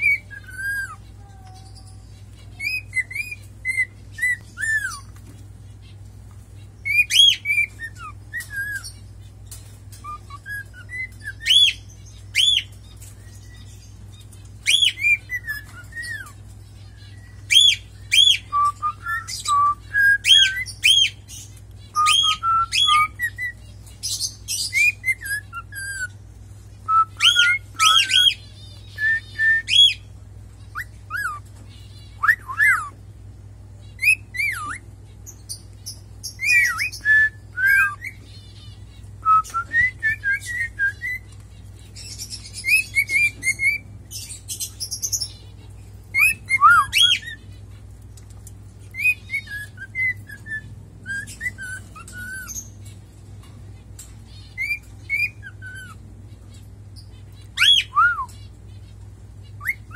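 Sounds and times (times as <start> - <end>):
cockatiel whistling: 26.9 - 30.0, 32.2 - 32.9, 36.4 - 38.2, 39.2 - 41.3, 46.2 - 47.4, 49.0 - 52.7, 54.6 - 56.0, 57.6 - 58.4.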